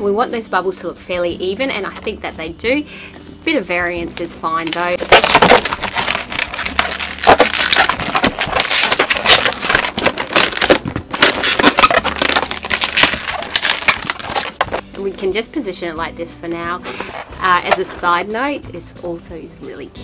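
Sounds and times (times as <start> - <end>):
latex balloons rubbing and squeaking: 4.6 - 15.0, 16.8 - 18.2.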